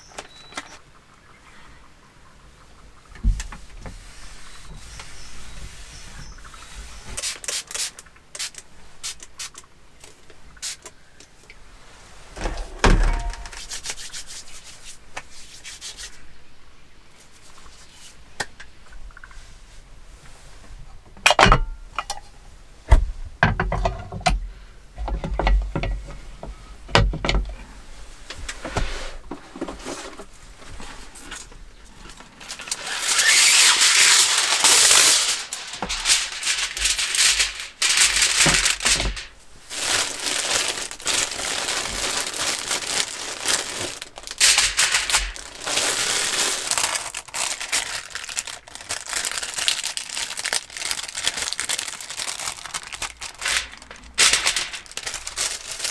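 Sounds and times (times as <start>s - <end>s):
sheet crinkling: 12.3s - 14.8s, 29.6s - 55.9s
cooking sheet tearing and rustling: 12.3s - 16.1s, 32.4s - 55.9s.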